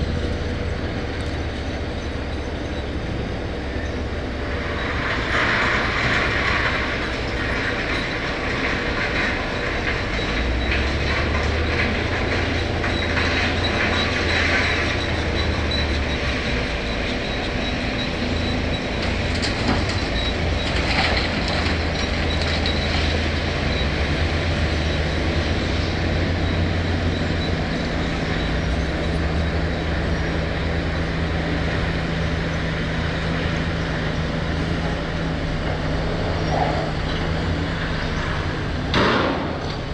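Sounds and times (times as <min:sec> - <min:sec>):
diesel engine running under load: 0:00.0 - 0:39.9.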